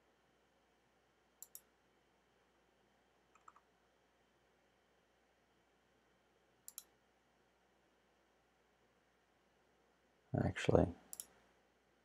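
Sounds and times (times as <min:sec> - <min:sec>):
computer mouse clicks: 0:01.4 - 0:01.7, 0:03.3 - 0:03.7, 0:06.6 - 0:06.9, 0:11.1 - 0:11.4.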